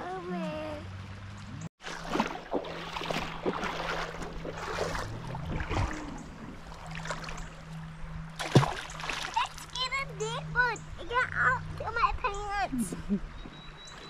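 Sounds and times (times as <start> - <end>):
creek water splashing: 1.0 - 12.7
steady low hum: 1.0 - 13.3.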